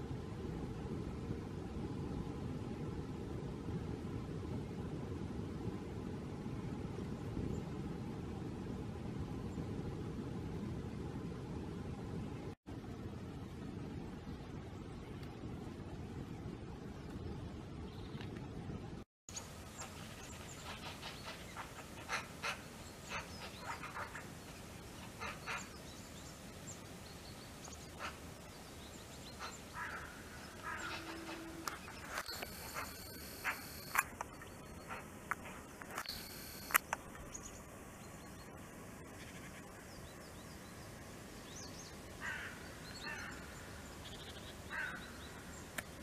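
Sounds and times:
small birds chirping: 0:19.3 - 0:46.0
sharp clicks: 0:31.6 - 0:34.4, 0:35.2 - 0:37.2.

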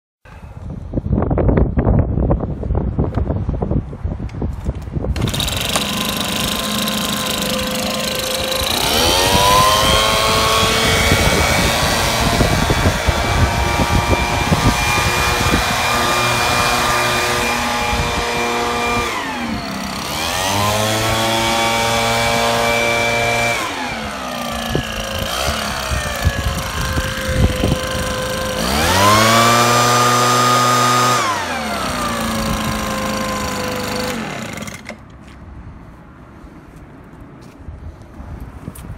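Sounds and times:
blower engine revving: 0:05.1 - 0:35.0.

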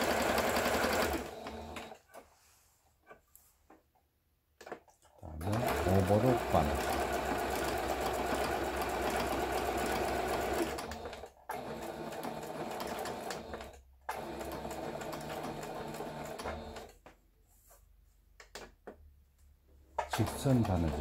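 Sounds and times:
sewing machine stitching fabric: 0:00.0 - 0:02.2, 0:04.6 - 0:17.2, 0:19.9 - 0:21.0.

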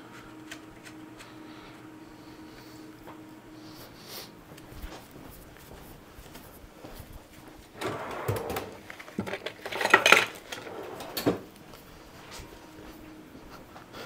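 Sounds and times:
metal hand tools clattering: 0:09.1 - 0:10.7.

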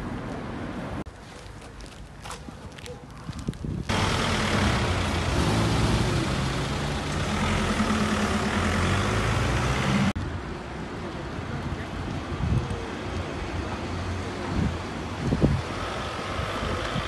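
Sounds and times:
road noise: 0:00.0 - 0:17.0
vehicle engine running: 0:03.9 - 0:10.2.

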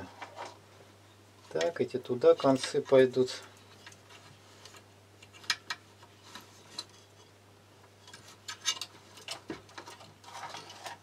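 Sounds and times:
small parts clicking and tapping: 0:02.4 - 0:07.0.

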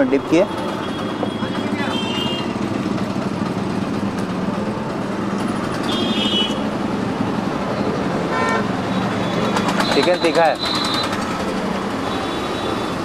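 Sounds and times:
street traffic noise: 0:00.0 - 0:13.0.

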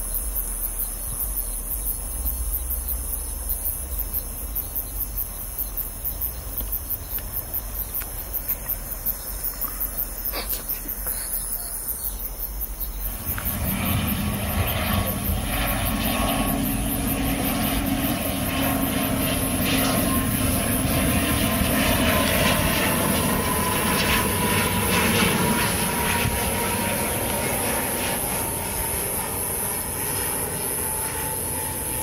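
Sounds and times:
turboprop plane engine drone: 0:00.0 - 0:32.0
falling engine whine: 0:12.8 - 0:32.0.

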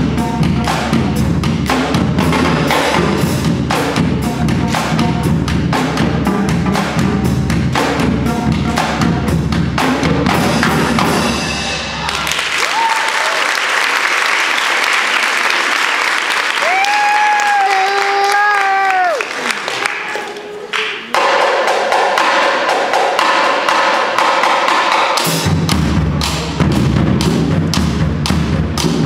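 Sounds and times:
marching drumline: 0:00.0 - 0:12.8, 0:21.1 - 0:29.0
audience applause: 0:12.0 - 0:21.1.

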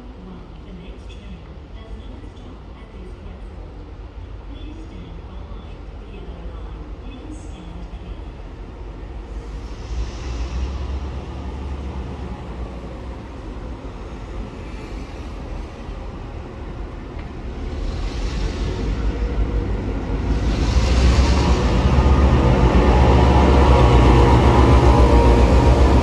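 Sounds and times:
diesel locomotive engines rumbling: 0:00.0 - 0:26.0
hiss of wheels on rails: 0:09.0 - 0:26.0.

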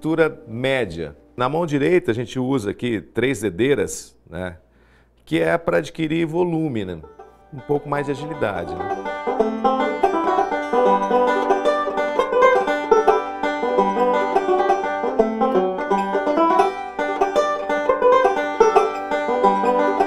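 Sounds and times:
banjo fingerpicked rolling notes: 0:06.8 - 0:20.0.

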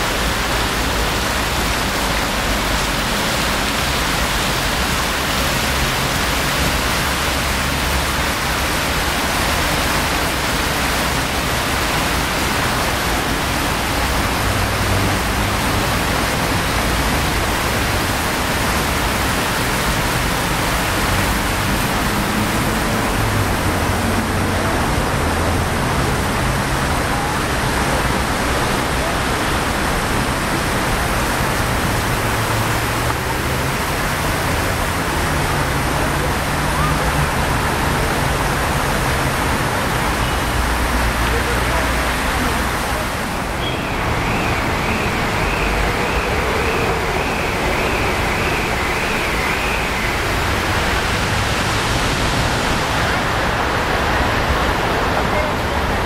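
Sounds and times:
fountain water splashing: 0:00.0 - 0:56.0.

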